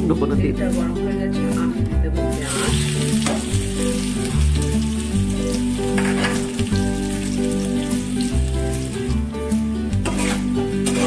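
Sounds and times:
background music: 0.0 - 11.0
onions sizzling in hot oil: 2.4 - 9.6.

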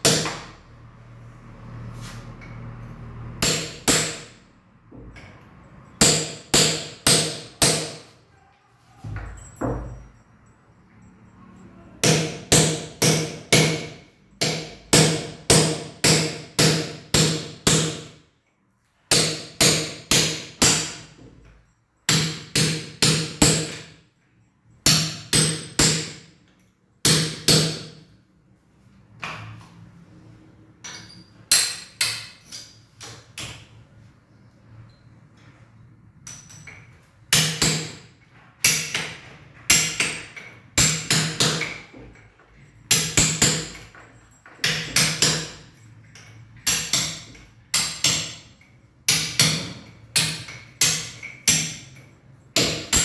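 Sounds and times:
hammer blows ringing: 0.0 - 0.8, 3.3 - 8.4, 9.0 - 18.2, 19.1 - 26.4, 27.0 - 28.2, 37.3 - 53.0.

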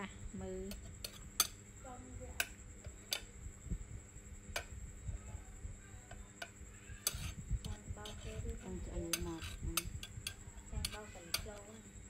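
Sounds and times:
utensils clicking against dishes: 0.7 - 1.6, 2.4 - 3.4, 6.4 - 11.8.

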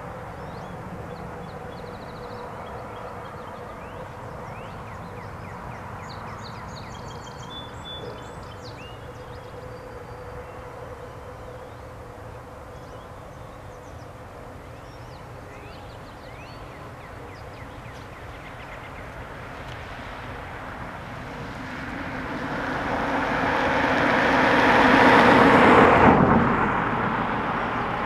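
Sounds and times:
birds calling: 0.0 - 21.6
faint hum: 0.0 - 24.4.

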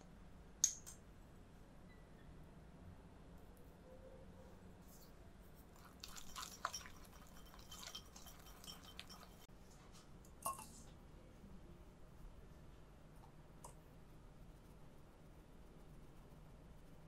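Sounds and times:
whisk squishy strokes: 5.5 - 9.5
whisk wires clinking on bowl: 5.8 - 9.5.

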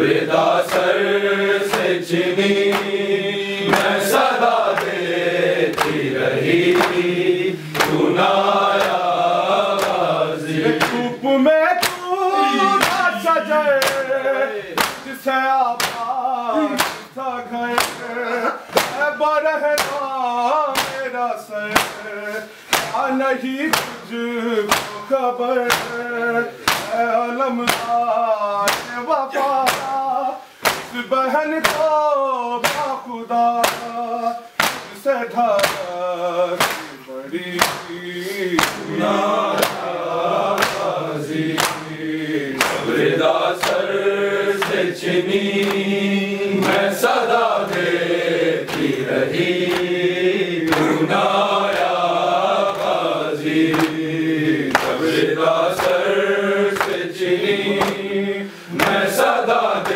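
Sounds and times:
men chanting in unison: 0.0 - 59.9
hands slapping chests: 0.2 - 11.2, 11.8 - 32.0, 32.6 - 59.9.

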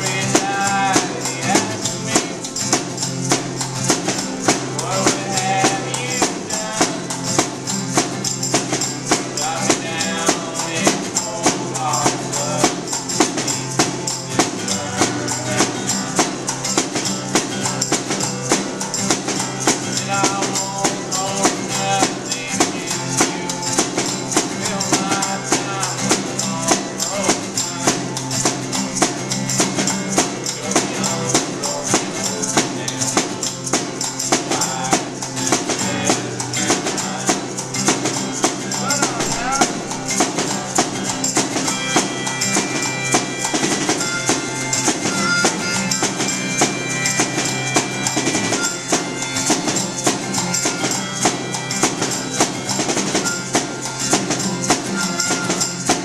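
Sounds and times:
person singing: 0.0 - 7.7, 8.7 - 16.2, 19.8 - 28.7, 30.2 - 43.7
hand shakers hissing: 0.0 - 56.0
snare drum beat: 0.0 - 56.0
strummed acoustic guitar: 0.0 - 56.0.

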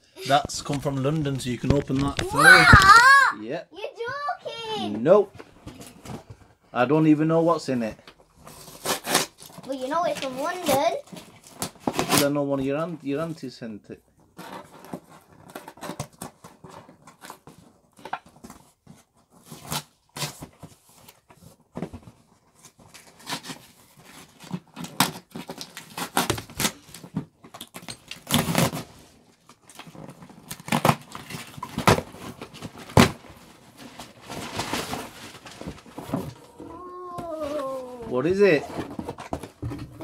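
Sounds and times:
cardboard and tape ripping: 1.6 - 3.2, 8.4 - 12.4, 14.4 - 40.0.

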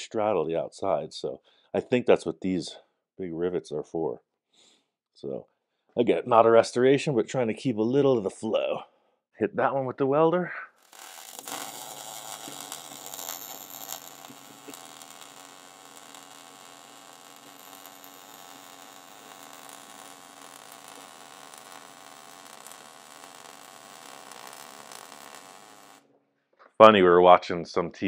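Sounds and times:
welding arc crackling hiss: 10.8 - 26.0.

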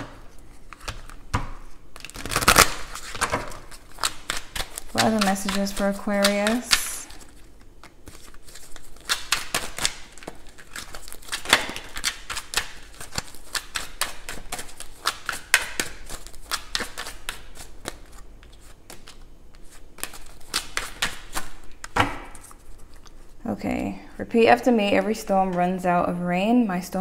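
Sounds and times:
cards being shuffled: 0.0 - 23.4.

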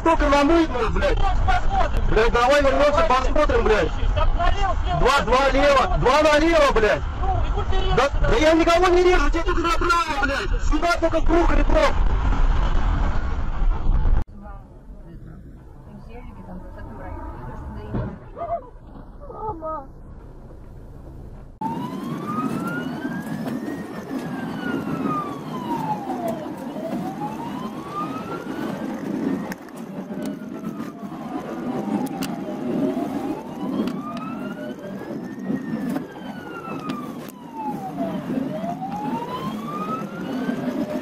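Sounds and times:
dense traffic rumble: 0.0 - 41.0
ambulance siren wailing: 21.6 - 41.0.

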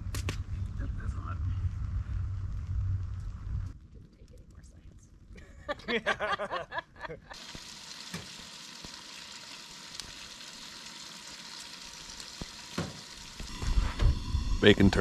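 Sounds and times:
bacon sizzling in a frying pan: 7.3 - 13.6.

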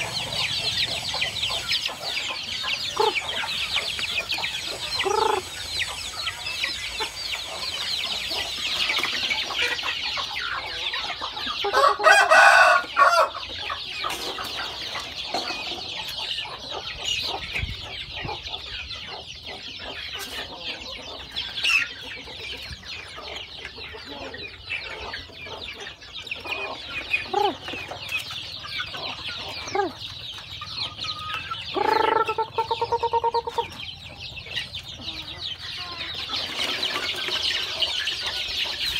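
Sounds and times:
chicken clucks and calls: 0.0 - 38.9
chicks peeping: 0.0 - 38.9
rooster crowing: 11.7 - 13.4.

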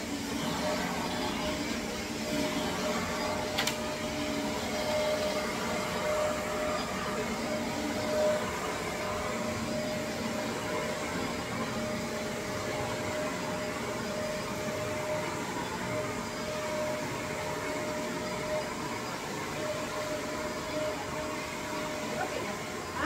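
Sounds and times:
vacuum cleaner running: 0.0 - 23.0.

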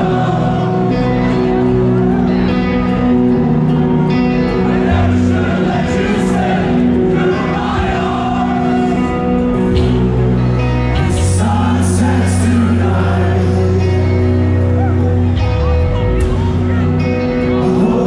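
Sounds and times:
sung vocals: 0.0 - 2.1, 4.4 - 15.3, 17.0 - 18.0
distorted guitars and bass: 0.0 - 18.0.

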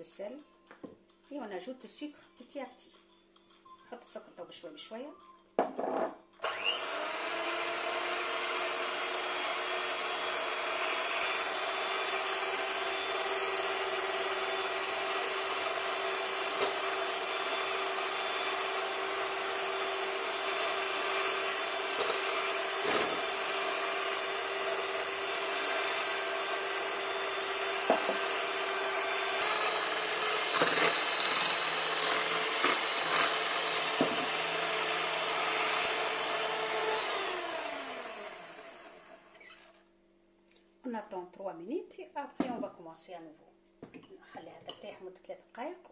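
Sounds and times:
electric hand mixer whirring: 6.4 - 39.8.

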